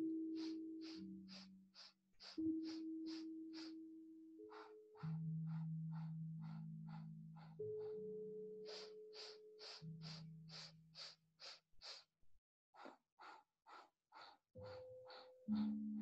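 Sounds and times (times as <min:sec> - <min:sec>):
soft background music: 0:00.0 - 0:11.5, 0:13.2 - 0:16.0
sharp rhythmic breathing: 0:00.3 - 0:03.8, 0:04.4 - 0:12.2, 0:12.8 - 0:16.0.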